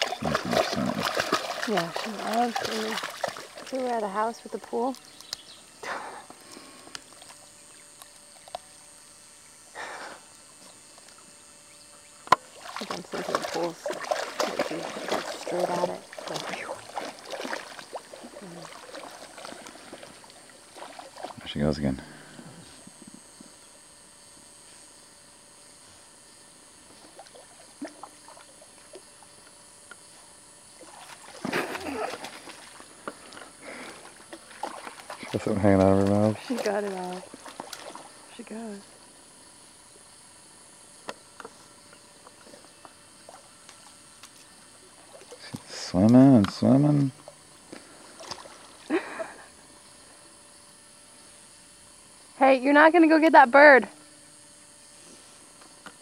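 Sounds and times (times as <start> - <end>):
dog splashing in water: 0.0 - 3.8, 12.5 - 21.4, 34.3 - 38.1.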